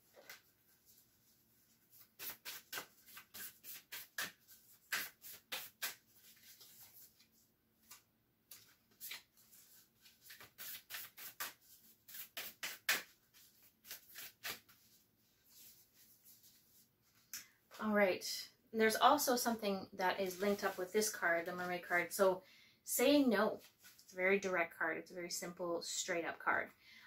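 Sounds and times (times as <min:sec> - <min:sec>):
cards being shuffled by hand: 0:00.0 - 0:17.3, 0:23.6 - 0:24.1.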